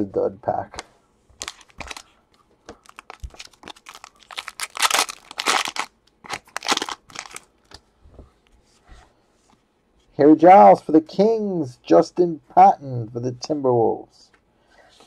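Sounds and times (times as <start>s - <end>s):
foil wrapper crinkling and tearing: 1.4s - 2.0s, 2.8s - 7.7s.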